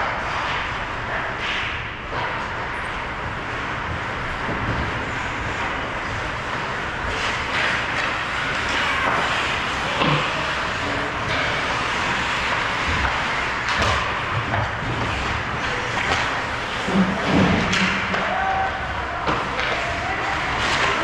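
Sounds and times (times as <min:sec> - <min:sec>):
skates scraping on ice: 0:00.0 - 0:21.0
sticks and puck knocking: 0:11.3 - 0:15.1.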